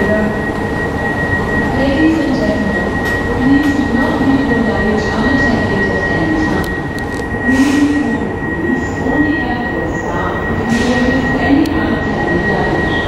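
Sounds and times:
escalator rumble and whine: 0.0s - 13.0s.

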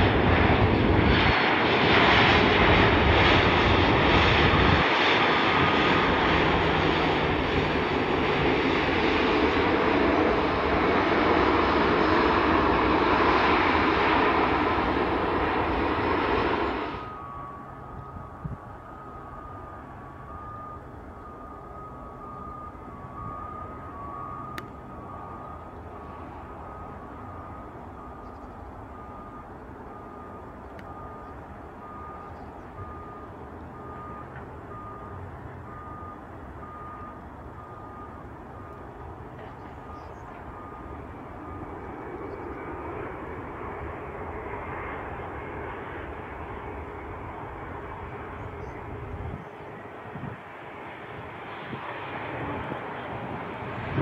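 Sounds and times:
jet engines rumbling: 0.0s - 54.0s
faint repeating beep: 17.0s - 25.6s, 26.6s - 38.9s, 39.8s - 42.5s.

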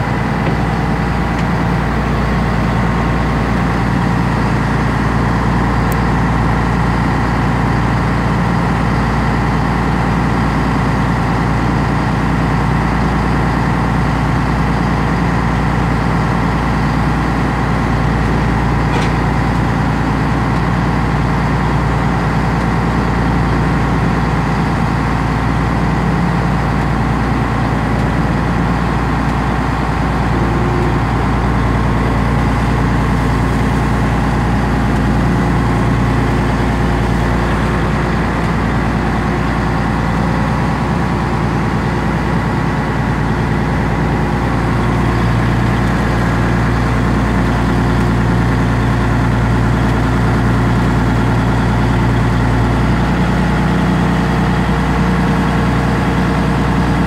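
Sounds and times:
boat engine droning: 0.0s - 57.0s
churning wake rushing: 0.0s - 57.0s.

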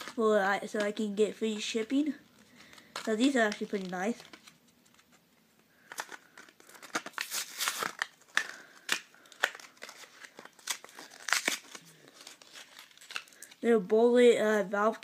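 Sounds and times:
packet crinkling and tearing: 0.0s - 13.8s.

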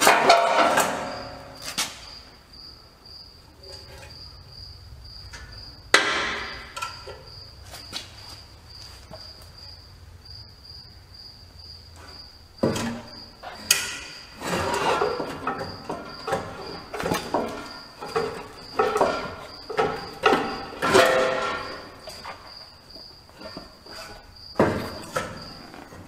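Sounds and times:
metal knocks and clanks: 0.0s - 2.1s, 3.6s - 8.1s, 12.0s - 26.0s.

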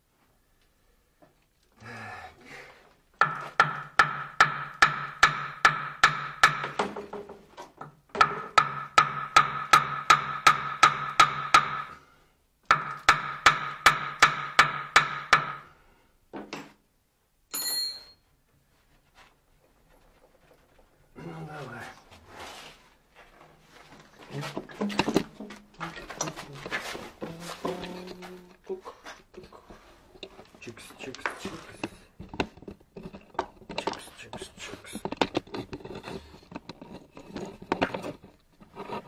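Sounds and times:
ringing metal tone: 17.5s - 18.2s.

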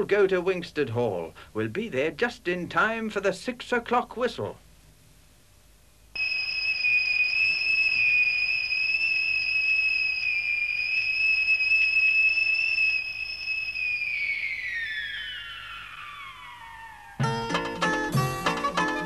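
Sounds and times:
high-pitched factory whistle blast: 6.2s - 19.0s.

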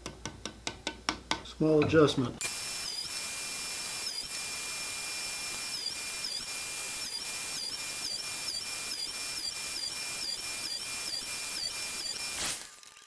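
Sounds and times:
table saw whining: 2.4s - 12.7s.

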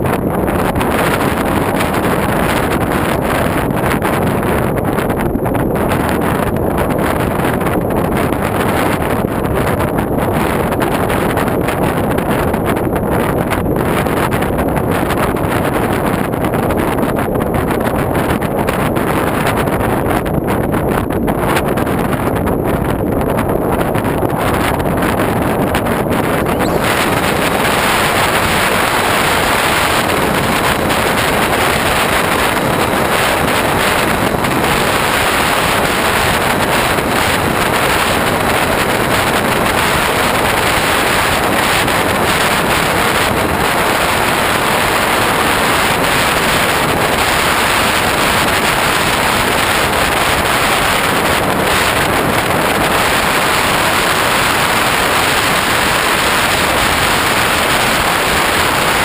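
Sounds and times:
airflow rushing over camera: 25.6s - 35.1s.

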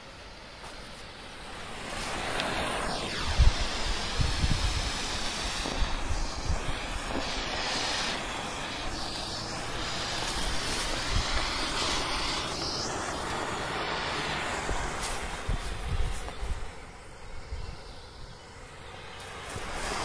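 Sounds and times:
smoke bomb hissing: 0.0s - 20.0s
wind buffeting microphone: 2.0s - 13.0s, 14.2s - 18.0s.

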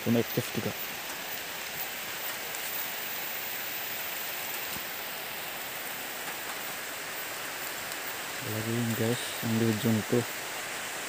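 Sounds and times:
steady rain-like hiss: 0.0s - 11.0s.

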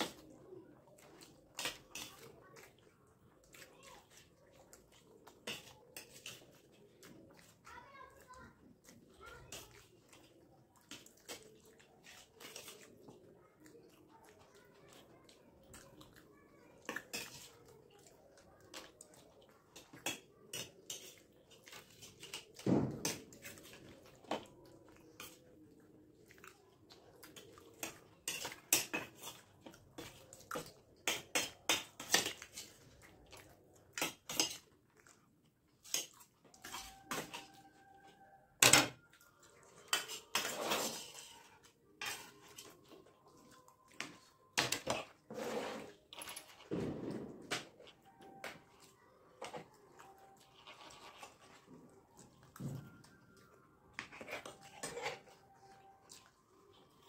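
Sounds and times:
metal spoons scraping steel plates: 19.8s - 23.2s, 39.9s - 41.3s, 54.0s - 55.4s.

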